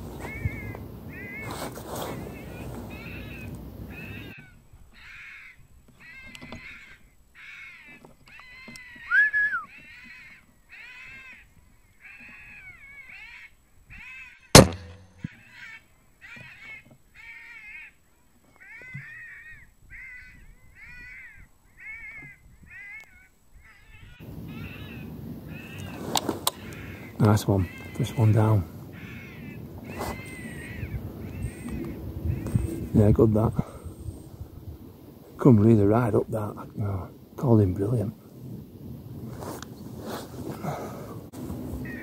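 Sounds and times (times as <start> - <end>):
electronic fox call cries: 0.2 - 11.4, 18.6 - 32.8
rifle shot: 14.6 - 15.2.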